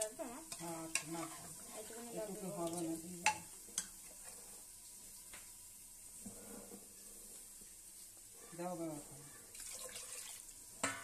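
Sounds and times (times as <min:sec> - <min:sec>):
metal ladle stirring in pot: 0:00.5 - 0:04.5.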